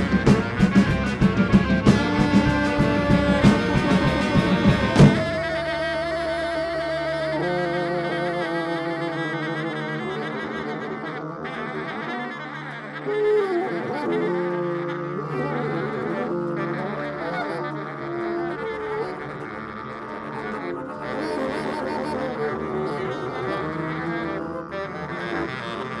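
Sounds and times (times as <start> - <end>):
sustained low tone: 0.0 - 12.8
slow melody of held notes: 1.9 - 26.0.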